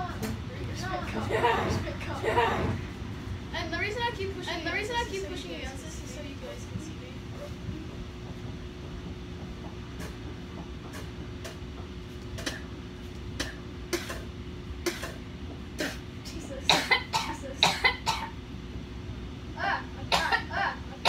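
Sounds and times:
boy coughing and gagging: 1.2 - 2.8, 13.4 - 15.2, 15.8 - 18.4, 19.6 - 21.0.

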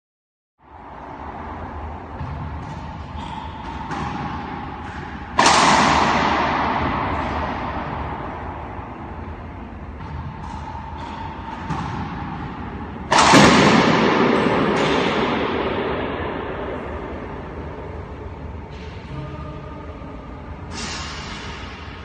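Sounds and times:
racquetball shot cracking: 2.2 - 8.6, 9.9 - 17.2.

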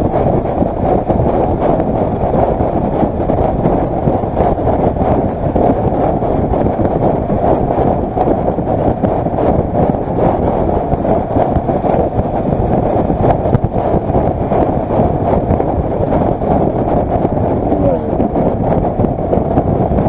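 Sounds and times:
road noise: 0.0 - 20.0
wind rushing over microphone: 0.0 - 20.0.

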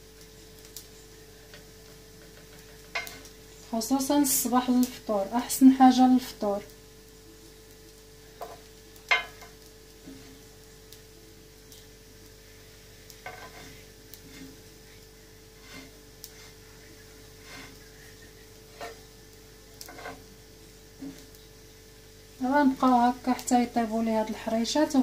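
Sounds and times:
cakes frying in a pan: 0.0 - 25.0
metal spatula scraping and tapping: 2.2 - 3.3, 8.4 - 10.4, 13.1 - 14.6, 15.6 - 16.6, 17.4 - 17.8, 18.6 - 19.1, 19.8 - 20.3.

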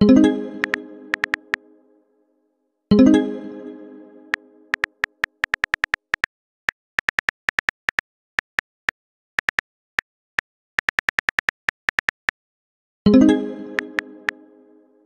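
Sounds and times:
phone keyboard typing clicks: 0.6 - 1.5, 4.8 - 6.3, 7.0 - 9.6, 10.8 - 12.4.

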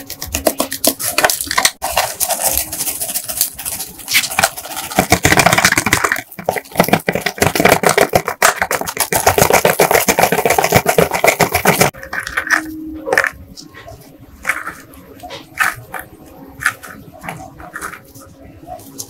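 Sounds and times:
parts rattling in plastic sieve: 0.0 - 13.4.

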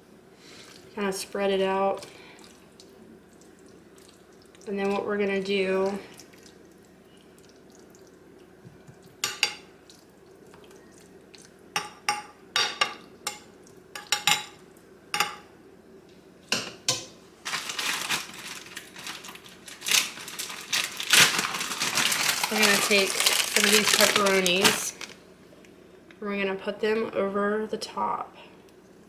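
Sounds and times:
crinkling rustle: 17.4 - 25.2.

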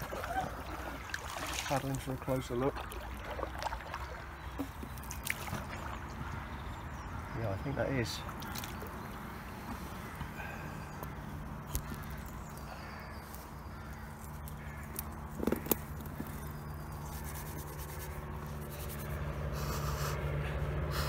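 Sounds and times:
distant engine drone: 0.0 - 21.0
plants rustling and snapping: 11.6 - 12.2
person sniffing: 19.5 - 21.0.

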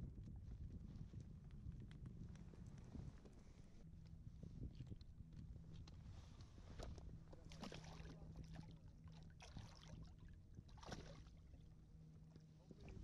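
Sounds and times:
low steady hum: 0.0 - 13.0
water splashing and sloshing: 6.2 - 13.0.

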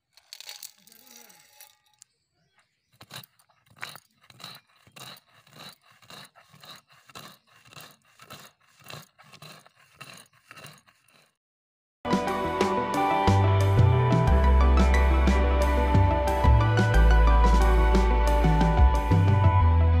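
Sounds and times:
stone roller crushing sugar candy: 0.0 - 11.4.

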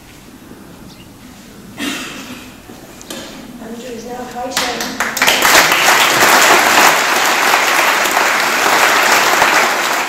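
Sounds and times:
audience applauding: 4.6 - 10.0.

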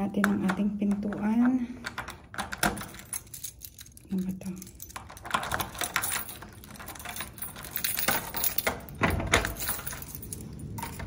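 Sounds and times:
keys jangling in door lock: 0.8 - 11.0
door opening: 5.0 - 11.0.

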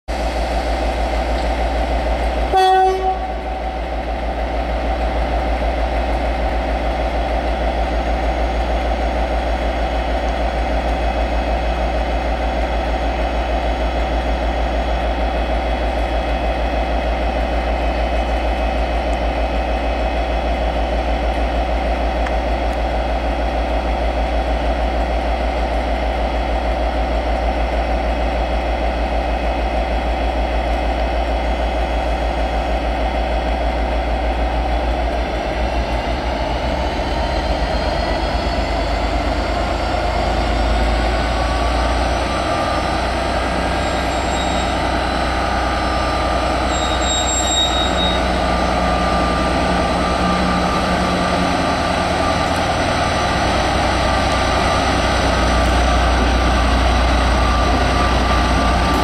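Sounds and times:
diesel locomotive engine drone: 0.1 - 59.0
locomotive horn blast: 2.5 - 3.4.

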